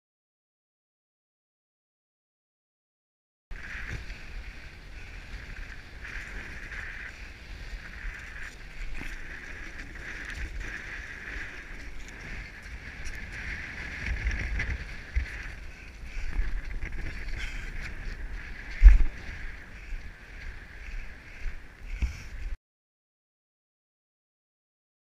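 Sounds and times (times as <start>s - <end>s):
wind rumbling on microphone: 3.5s - 22.6s.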